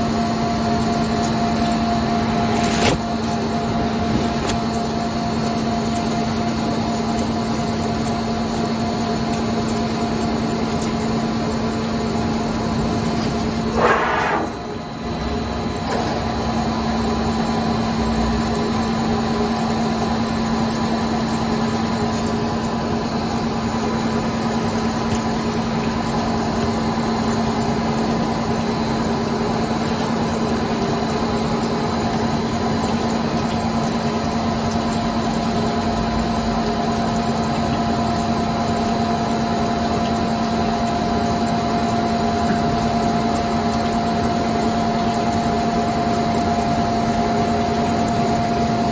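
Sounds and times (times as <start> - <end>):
coolant spray hissing: 12.8 - 14.9.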